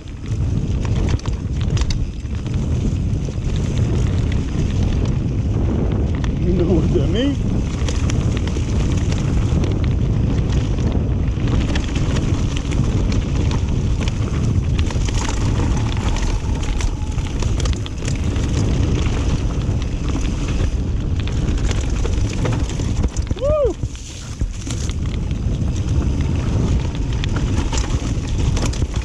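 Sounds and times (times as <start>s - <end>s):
wind buffeting microphone: 0.0s - 29.0s
tyres rumbling on dirt: 0.2s - 29.0s
bike knocks and rattles: 7.4s - 29.0s.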